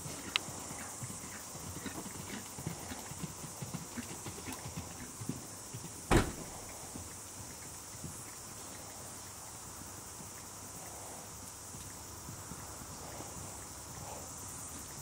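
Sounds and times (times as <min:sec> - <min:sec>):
horse hooves cantering on soft ground: 0:00.0 - 0:15.0
loud thump: 0:06.1 - 0:06.8.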